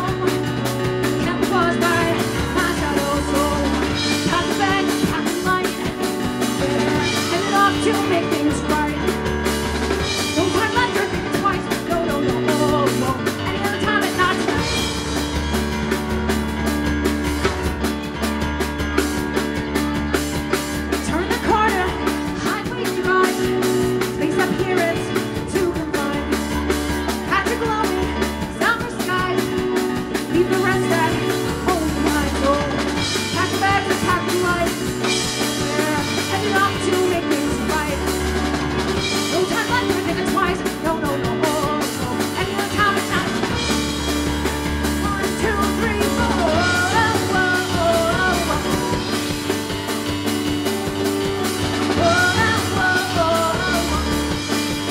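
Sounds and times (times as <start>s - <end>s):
woman singing: 0.0s - 9.2s, 10.2s - 15.0s, 20.9s - 38.2s, 39.2s - 44.0s, 44.9s - 49.5s, 51.9s - 54.9s
digital piano playing: 0.0s - 54.9s
drum kit beat: 0.0s - 54.9s.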